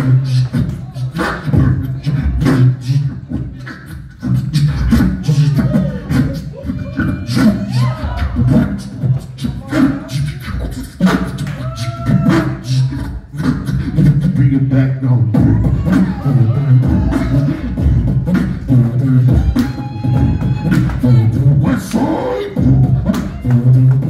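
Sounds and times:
beatboxing vocal drum hits: 0:00.0 - 0:24.0
deep bass tones: 0:00.0 - 0:24.0
pitched vocal glides: 0:00.0 - 0:24.0.

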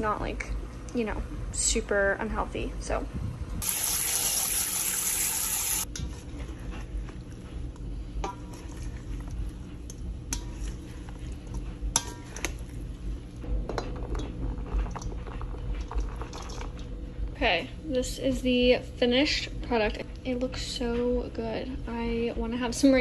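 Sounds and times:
tap water spraying: 0:03.6 - 0:05.9
utensil clinking on metal bowl: 0:08.2 - 0:12.7.

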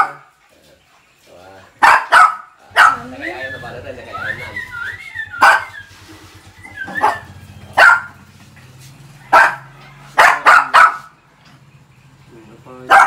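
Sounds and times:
small dogs barking: 0:00.0 - 0:00.4, 0:01.7 - 0:03.7, 0:05.2 - 0:08.3, 0:09.0 - 0:11.3, 0:12.8 - 0:13.0.

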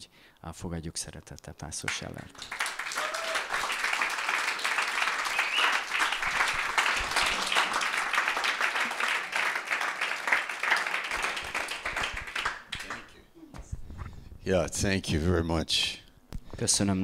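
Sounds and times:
congregation applauding: 0:01.9 - 0:13.2.

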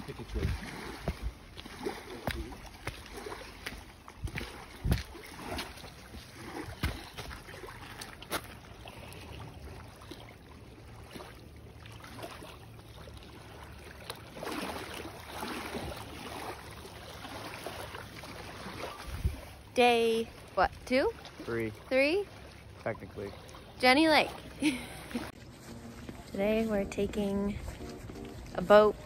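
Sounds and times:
choppy lake water: 0:00.0 - 0:29.0
wind: 0:00.0 - 0:29.0
footsteps on rock steps: 0:01.0 - 0:05.1.

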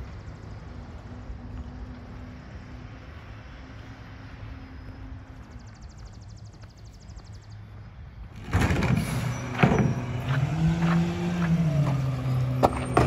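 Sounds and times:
diesel truck engine revving: 0:08.3 - 0:13.0
carts knocking and clanking: 0:08.4 - 0:13.0.

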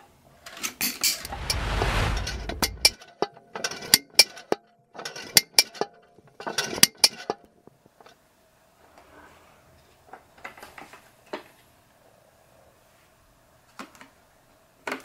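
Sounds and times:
low rumbling rush: 0:01.2 - 0:03.0.

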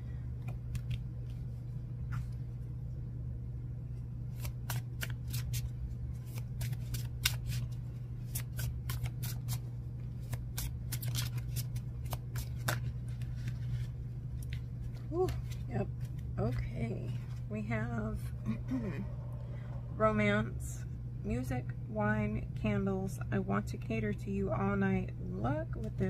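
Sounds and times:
low hum: 0:00.0 - 0:26.0
cards being shuffled: 0:00.4 - 0:02.4, 0:04.3 - 0:17.4.

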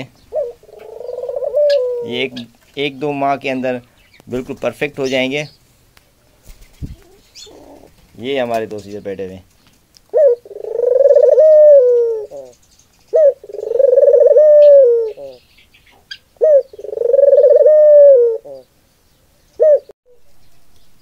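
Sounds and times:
dove cooing: 0:00.0 - 0:02.6, 0:06.8 - 0:08.0, 0:10.1 - 0:18.7, 0:19.6 - 0:19.9.

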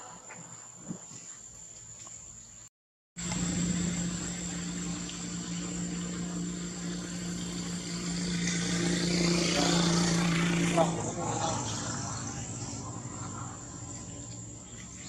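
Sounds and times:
even hiss: 0:03.2 - 0:15.0
low hum: 0:03.2 - 0:15.0.

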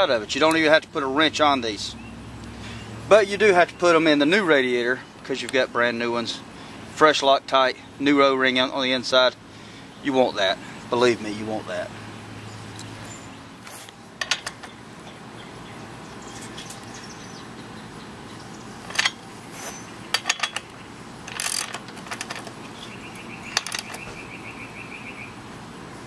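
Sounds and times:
socket ratchet clicking: 0:20.1 - 0:22.6.

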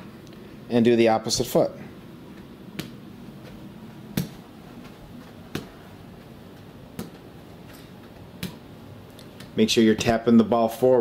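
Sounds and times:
foot tapping ball on carpet: 0:02.3 - 0:10.1.

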